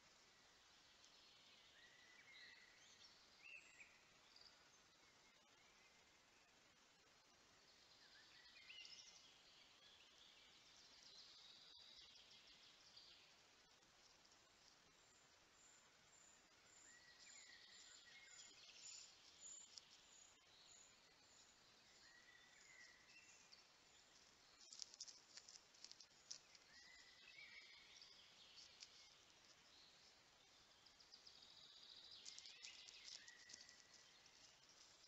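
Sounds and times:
small birds calling and singing: 0:00.0 - 0:35.0
soft clicks and rustles: 0:18.4 - 0:20.4, 0:23.9 - 0:27.2, 0:28.0 - 0:30.2, 0:32.1 - 0:35.0.

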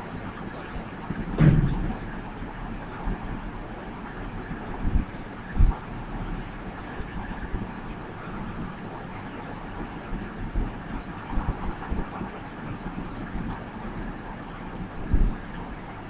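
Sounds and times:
computer mouse clicking: 0:01.9 - 0:03.2, 0:03.8 - 0:09.8, 0:12.8 - 0:13.7, 0:14.3 - 0:14.9, 0:15.5 - 0:15.9.

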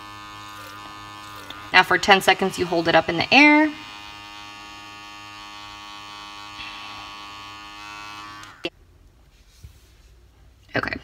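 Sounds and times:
small motor humming: 0:00.0 - 0:08.7.

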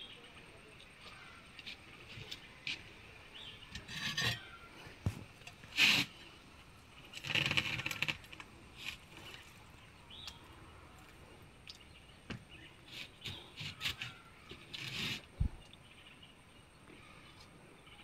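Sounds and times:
trowel scraping wet mortar: 0:01.6 - 0:04.7, 0:05.5 - 0:06.3, 0:12.8 - 0:15.3.

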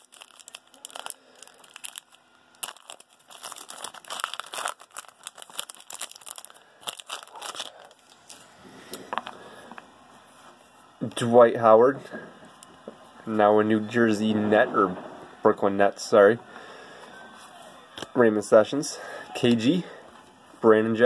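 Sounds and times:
foil wrapper crinkling and tearing: 0:00.0 - 0:08.5.

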